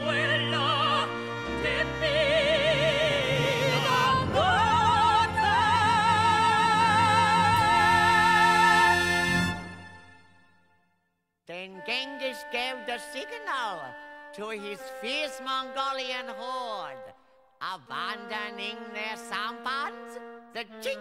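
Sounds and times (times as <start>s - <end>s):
operatic singing with orchestra: 0.0s - 10.1s.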